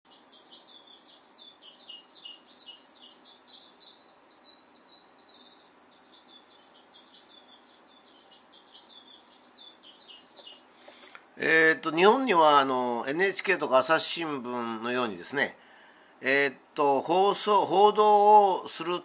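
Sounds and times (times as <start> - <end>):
skylark singing: 0.1 - 10.7.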